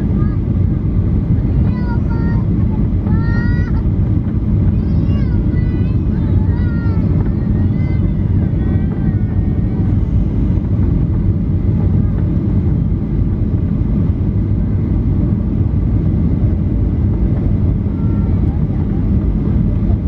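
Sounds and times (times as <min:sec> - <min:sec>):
airplane engines and airflow rumble: 0:00.0 - 0:20.0
faint voice: 0:17.8 - 0:20.0.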